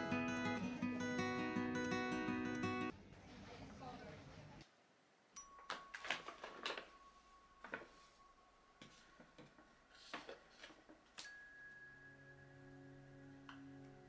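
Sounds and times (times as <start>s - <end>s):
paper bag crinkling: 5.9s - 7.0s.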